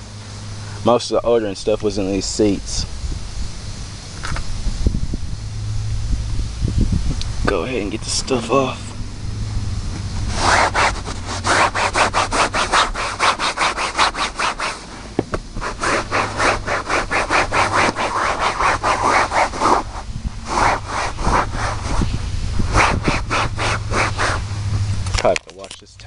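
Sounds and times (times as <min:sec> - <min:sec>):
towel scrubbing upholstery: 0:10.0 - 0:24.6.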